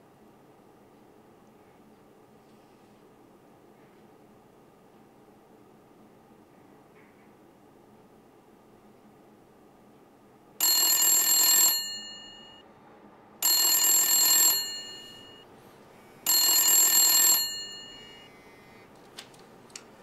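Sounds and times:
phone bell ringtone: 10.6 - 12.6, 13.4 - 15.5, 16.2 - 18.4.

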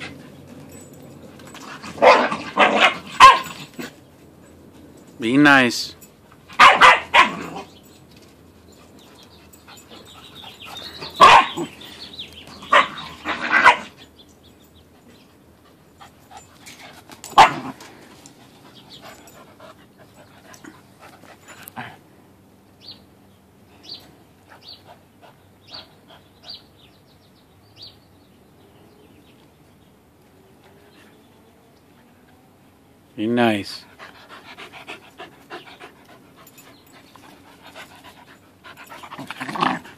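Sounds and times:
dogs barking: 1.7 - 4.0, 6.5 - 7.8, 9.4 - 14.1, 17.3 - 17.8.

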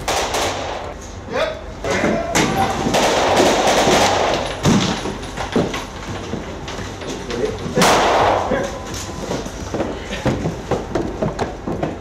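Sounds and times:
sharp bangs and thuds: 2.0 - 6.5.

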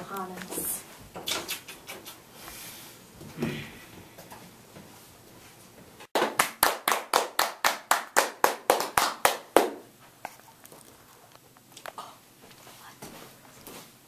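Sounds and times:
hands clapping: 6.2 - 9.9.

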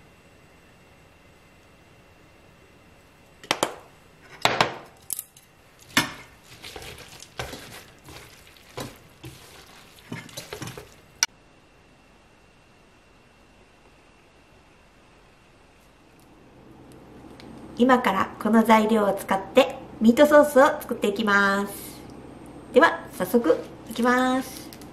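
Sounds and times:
utensils knocking and scraping a pan: 5.8 - 11.0.

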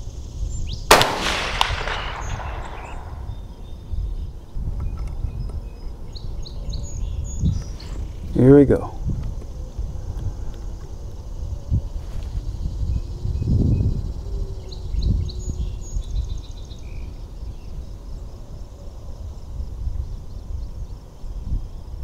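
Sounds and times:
low rumble on microphone: 0.0 - 18.0
birds chirping faintly: 0.1 - 11.6.

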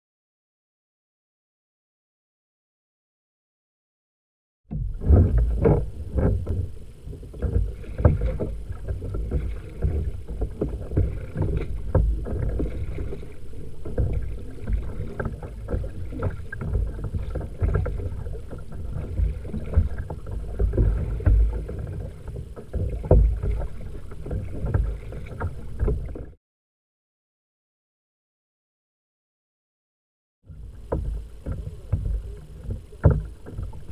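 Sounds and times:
paddle splashing: 4.7 - 26.4, 30.5 - 33.9
water slapping hull: 4.7 - 26.4, 30.5 - 33.9
heavy low rumble: 4.8 - 21.7.

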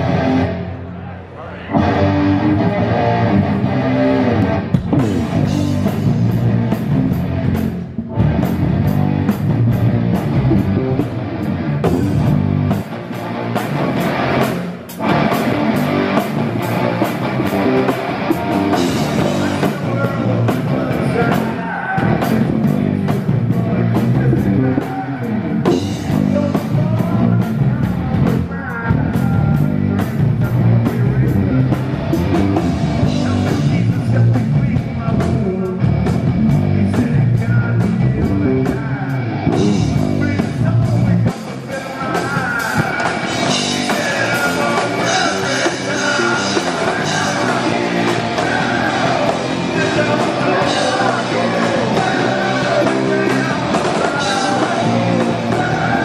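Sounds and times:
electric guitars: 0.0 - 56.0
drum kit with cymbals: 39.5 - 56.0.

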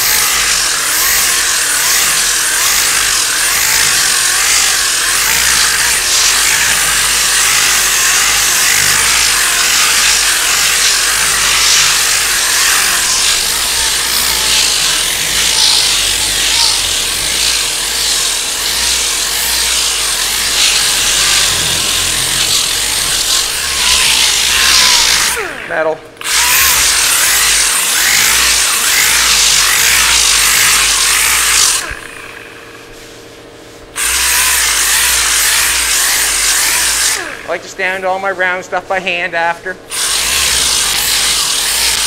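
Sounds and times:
sandpaper sanding filler: 0.0 - 25.4.

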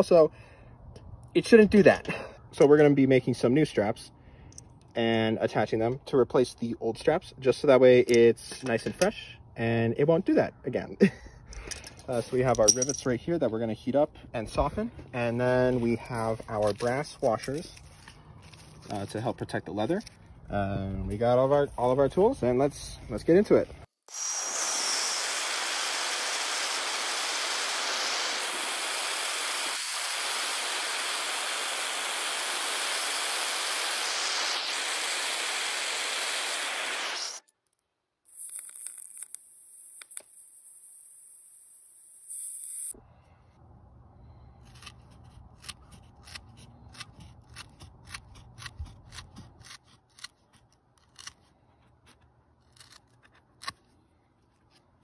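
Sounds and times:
propane torch hissing: 24.1 - 37.4
tin snips cutting leather: 44.7 - 53.9.

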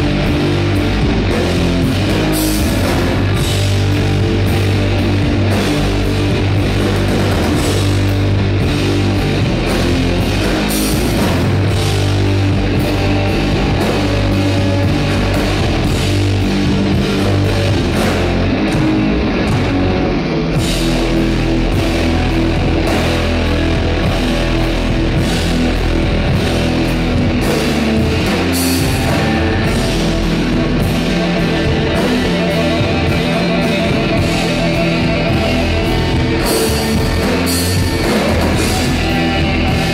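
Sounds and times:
bass guitar: 0.0 - 39.9
distorted electric guitars: 0.0 - 39.9
drum kit: 0.0 - 39.9.

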